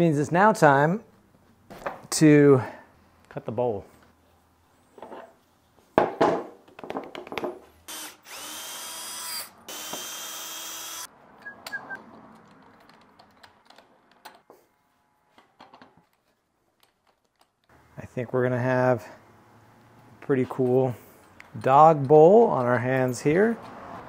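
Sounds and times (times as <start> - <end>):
power drill whirring: 7.9 - 11.1.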